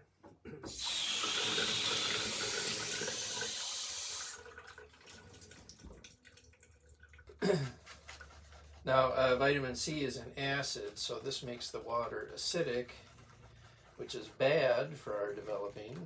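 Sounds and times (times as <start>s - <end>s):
water running from a faucet: 0.7s - 7.4s.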